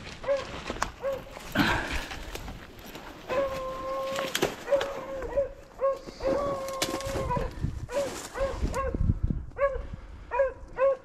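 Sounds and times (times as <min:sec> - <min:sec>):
twigs and brush crackling: 0:00.0 - 0:09.6
dog barking: 0:00.2 - 0:01.3, 0:04.6 - 0:06.5, 0:07.3 - 0:09.0, 0:09.6 - 0:11.0.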